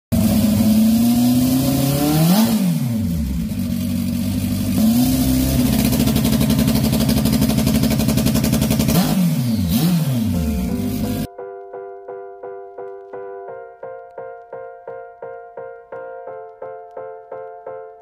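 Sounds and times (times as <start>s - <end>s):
motorcycle engine revving: 0.1s - 11.3s.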